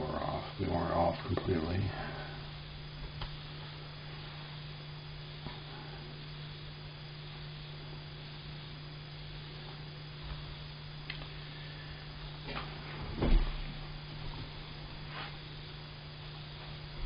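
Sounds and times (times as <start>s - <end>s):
low electrical hum with hiss: 0.0s - 17.0s.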